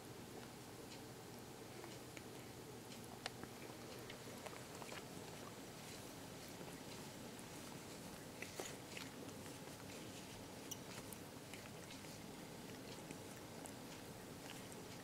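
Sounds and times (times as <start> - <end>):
steady low hiss: 0.0 - 15.0
cat tongue licking fur: 3.4 - 15.0.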